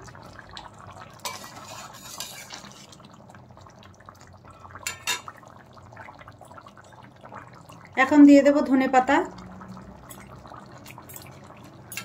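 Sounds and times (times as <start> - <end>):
curry simmering and bubbling: 0.0 - 12.0
metal spatula scraping metal pan: 1.2 - 3.0.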